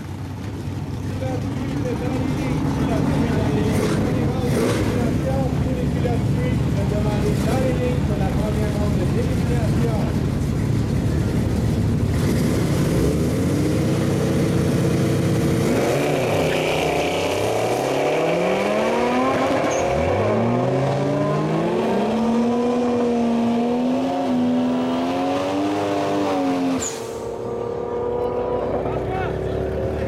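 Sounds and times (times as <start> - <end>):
drag car engines revving and accelerating: 0.0 - 30.0.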